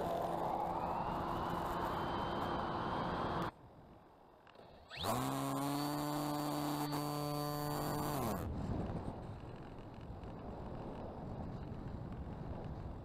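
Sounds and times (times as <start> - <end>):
motor spinning up with rising whine: 0.0 - 3.5, 4.9 - 8.4
model plane motor and propeller: 0.0 - 3.6, 4.4 - 13.0.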